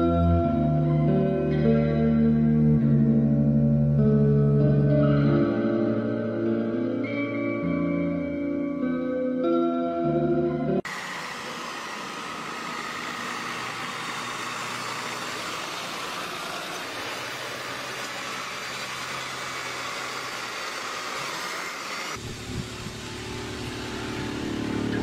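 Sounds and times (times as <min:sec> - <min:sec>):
diesel engine rumble: 0:10.8 - 0:25.0
truck engine and road noise hiss: 0:10.9 - 0:25.0.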